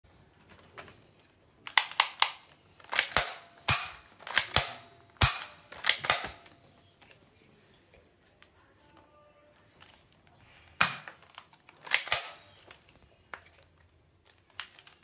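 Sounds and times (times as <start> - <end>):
toy pistol clicks: 1.6 - 6.6, 10.8 - 13.5.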